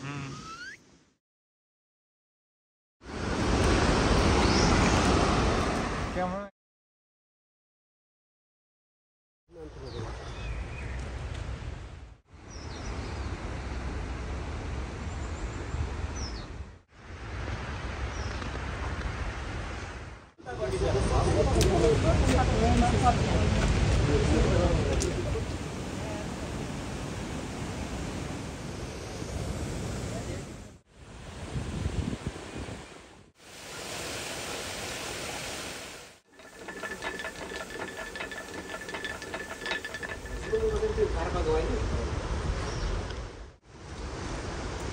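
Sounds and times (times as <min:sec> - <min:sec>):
grain mill chute clattering: 0:36.3 - 0:41.4
thin steady whine: 0:36.3 - 0:41.4.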